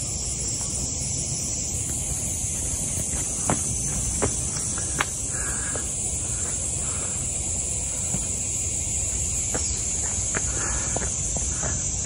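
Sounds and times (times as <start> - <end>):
insect chorus: 0.0 - 12.0
soft footsteps on path: 1.6 - 6.7, 8.0 - 12.0.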